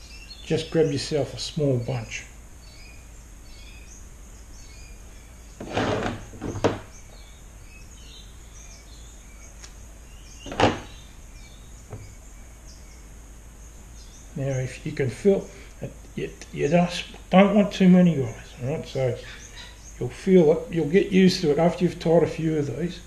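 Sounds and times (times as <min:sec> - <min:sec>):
low room hum: 0:00.0 - 0:23.0
rustle and knock: 0:05.5 - 0:07.3, 0:10.4 - 0:11.0, 0:11.8 - 0:12.3.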